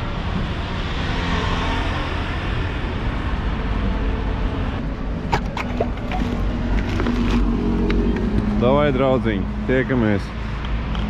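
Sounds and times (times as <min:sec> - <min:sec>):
road traffic rumble: 0:00.0 - 0:11.0
sharp clicks and knocks: 0:05.2 - 0:08.6.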